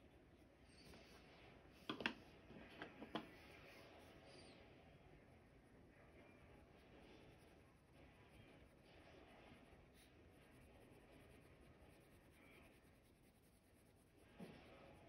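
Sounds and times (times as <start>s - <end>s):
pencil shading on paper: 6.7s - 15.0s.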